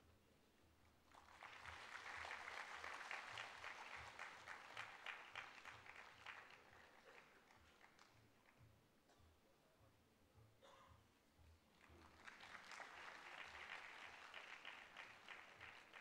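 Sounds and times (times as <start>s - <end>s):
faint audience applause: 1.0s - 8.7s, 11.7s - 16.0s.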